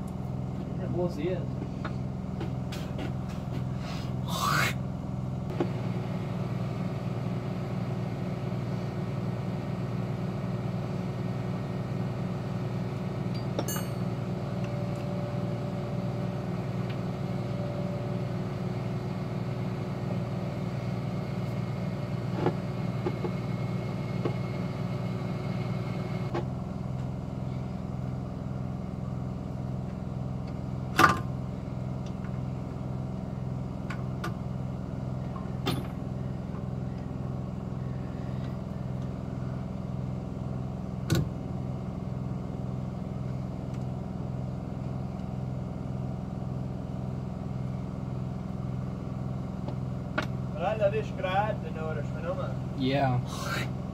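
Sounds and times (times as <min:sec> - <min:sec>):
low mechanical drone: 0:00.0 - 0:53.9
metal clinks and knocks: 0:13.4 - 0:14.1.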